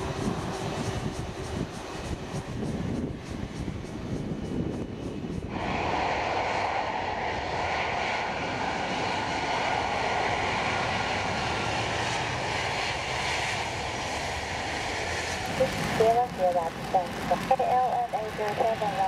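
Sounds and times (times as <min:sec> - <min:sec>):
airliner jet engines at high power: 0:00.0 - 0:19.0.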